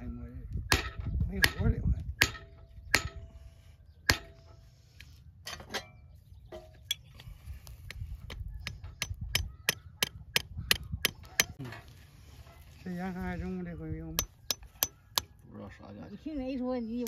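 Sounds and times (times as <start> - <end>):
hammer striking steel: 4.1 - 4.4.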